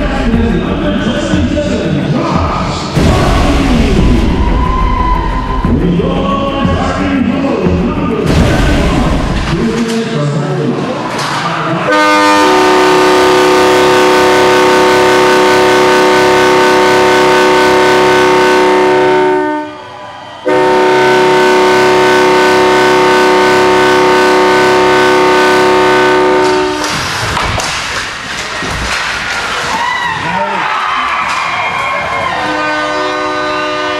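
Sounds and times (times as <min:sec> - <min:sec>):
goal horn blasts: 0:11.9 - 0:19.8, 0:20.5 - 0:27.0, 0:32.4 - 0:33.9.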